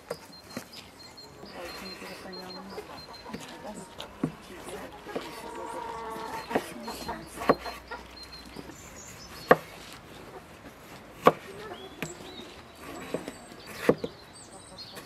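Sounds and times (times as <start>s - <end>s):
birds chirping faintly: 0.0s - 15.0s
knife chopping on wooden board: 6.4s - 7.8s, 9.4s - 9.8s, 11.2s - 11.5s.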